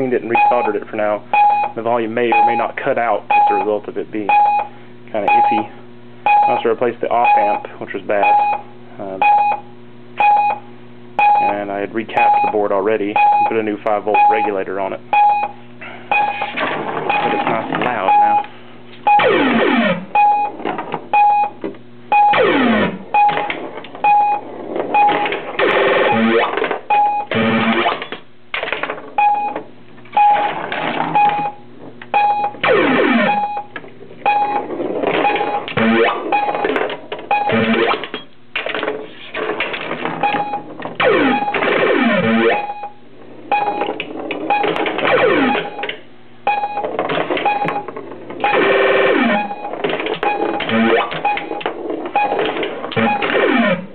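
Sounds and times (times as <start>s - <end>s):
steady low hum: 0.0s - 53.9s.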